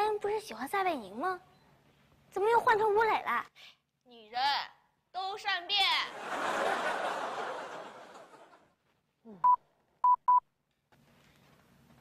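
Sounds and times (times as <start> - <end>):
canned audience laughter: 6.2 - 8.7.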